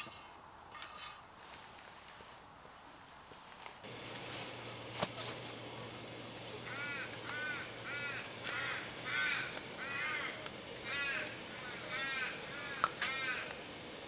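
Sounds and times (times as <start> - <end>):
bird cawing: 6.6 - 13.9.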